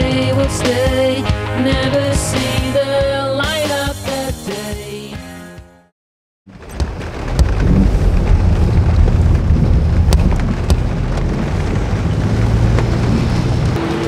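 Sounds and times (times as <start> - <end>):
road and engine rumble: 6.5 - 14.0.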